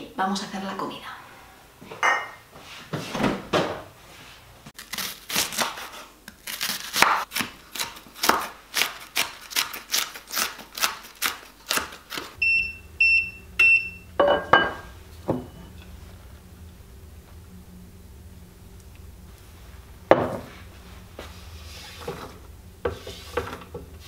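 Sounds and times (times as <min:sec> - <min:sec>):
knife chopping on wooden board: 0:07.0 - 0:09.8.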